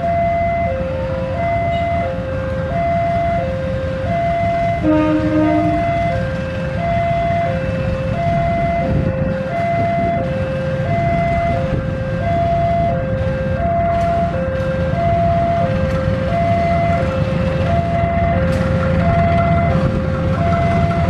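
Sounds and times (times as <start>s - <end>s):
diesel locomotive engine rumble: 0.0s - 21.0s
level crossing alarm two-note tone: 4.1s - 6.2s.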